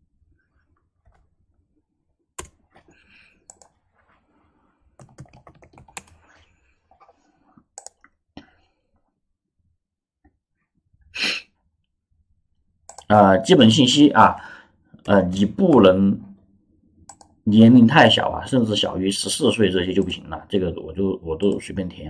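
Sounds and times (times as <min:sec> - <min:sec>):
keyboard typing: 0:02.4 - 0:02.6, 0:05.0 - 0:06.4, 0:07.8 - 0:08.1.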